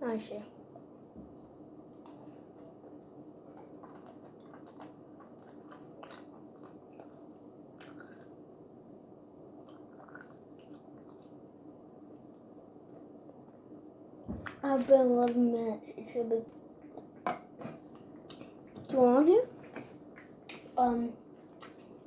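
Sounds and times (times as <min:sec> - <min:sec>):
child chewing with crunches: 0:00.7 - 0:08.5, 0:09.6 - 0:11.4, 0:17.8 - 0:18.8, 0:21.4 - 0:22.0.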